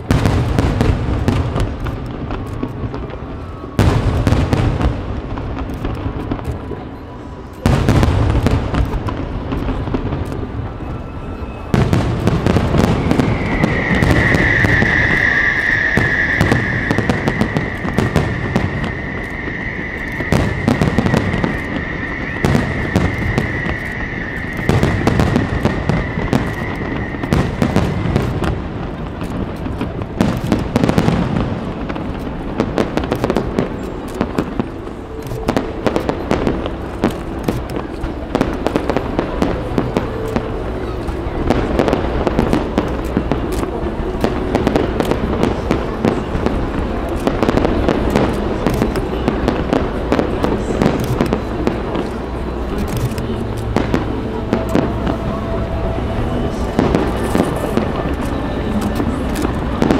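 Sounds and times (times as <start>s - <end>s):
steady high tone: 10.6s - 29.1s, 51.4s - 59.8s
firework shells bursting: 11.7s - 34.8s.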